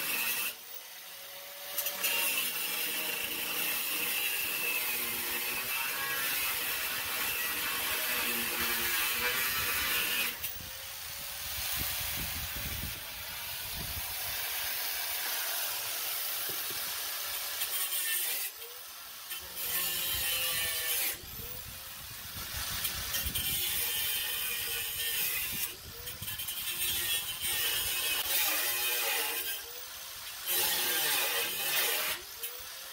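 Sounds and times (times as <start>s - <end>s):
angle grinder cutting metal: 0.0s - 32.9s.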